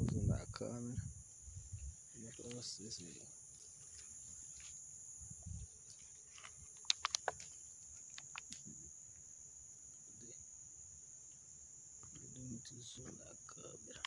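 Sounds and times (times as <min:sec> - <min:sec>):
insects chirping: 0:00.0 - 0:14.0
sharp clicks: 0:06.8 - 0:08.7.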